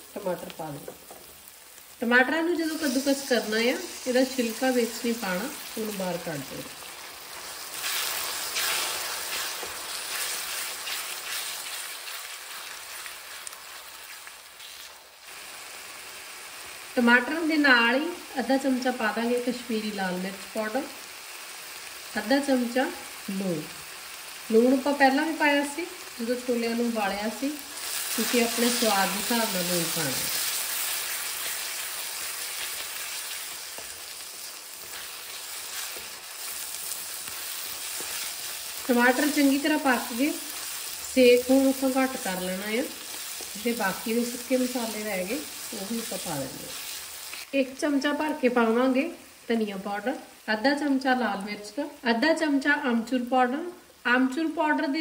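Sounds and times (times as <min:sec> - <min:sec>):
tomatoes sizzling in hot oil: 0:00.0 - 0:55.0
wooden spatula scraping a pan: 0:07.4 - 0:13.1.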